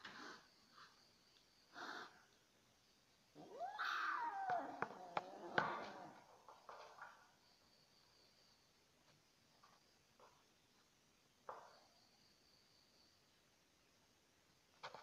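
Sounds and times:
kitten yowling: 3.4s - 6.2s.

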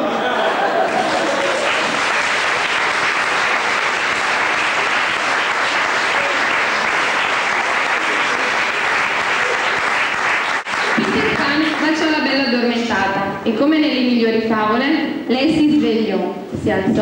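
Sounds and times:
audience applauding: 0.0s - 12.2s.

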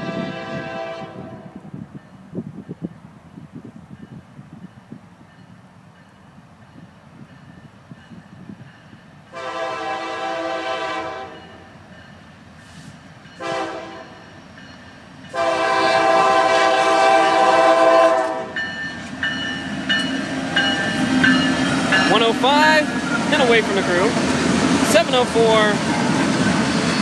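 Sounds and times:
locomotive air horn blasts: 0.0s - 1.6s, 9.3s - 11.6s, 13.4s - 14.2s, 15.3s - 18.6s
locomotive engine and wheels: 0.0s - 27.0s.

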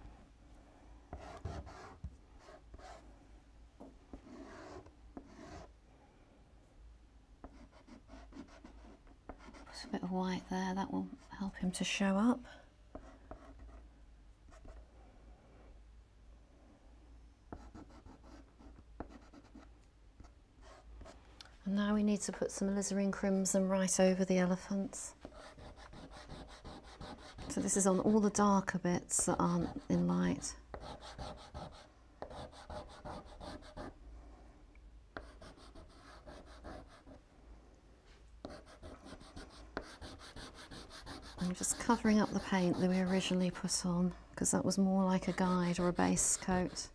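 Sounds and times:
pastel scratching on paper: 38.5s - 43.6s.

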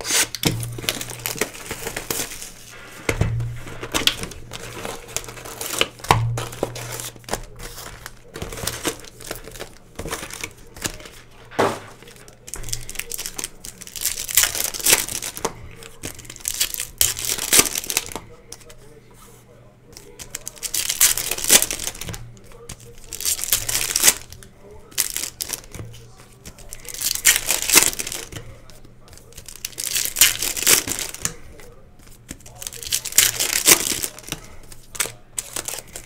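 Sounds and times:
cards shuffled: 0.0s - 18.8s
wrappers tearing and crinkling: 0.0s - 18.8s, 20.0s - 36.0s.

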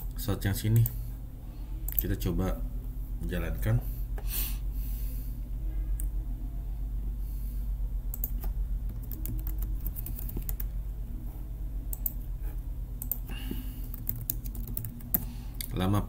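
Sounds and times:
steady low hum: 0.0s - 16.0s
computer keyboard keystrokes: 8.1s - 10.7s, 11.9s - 12.2s, 13.0s - 15.2s.

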